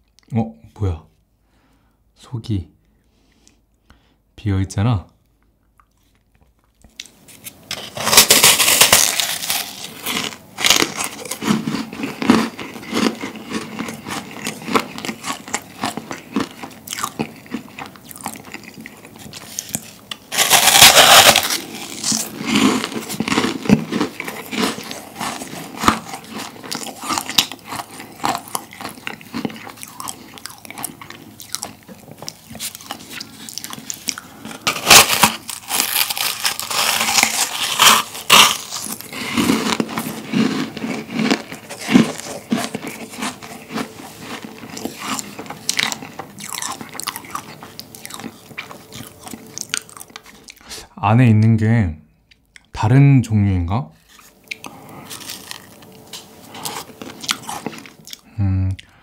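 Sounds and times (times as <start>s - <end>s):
crackling chewing: 5.2s - 50.8s, 54.0s - 59.0s
crunching bites of meringue: 6.9s - 50.6s, 54.1s - 58.9s.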